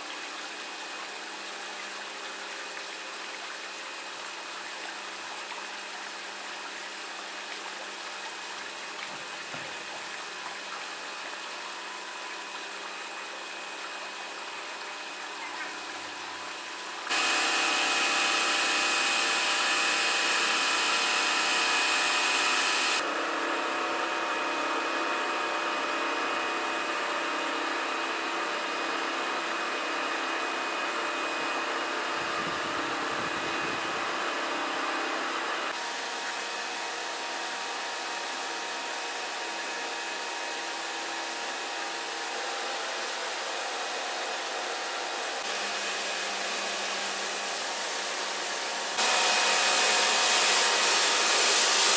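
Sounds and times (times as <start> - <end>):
pressure washer motor whine: 16.2 - 51.9
hiss of water spray: 47.1 - 51.9.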